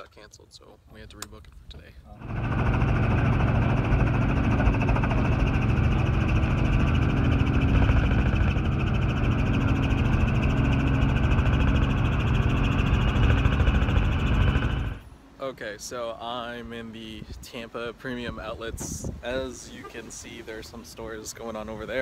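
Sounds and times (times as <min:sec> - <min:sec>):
helicopter engine and rotor drone: 0:02.1 - 0:15.1.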